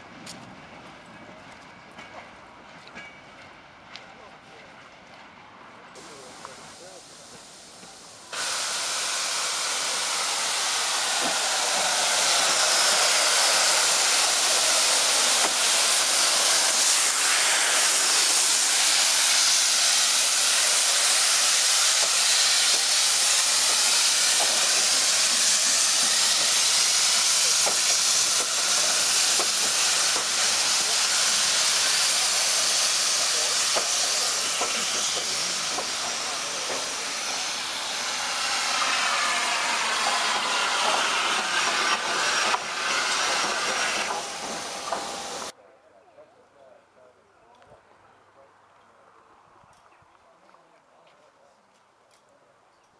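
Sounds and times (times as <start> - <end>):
steam locomotive hissing steam: 5.9 - 45.6.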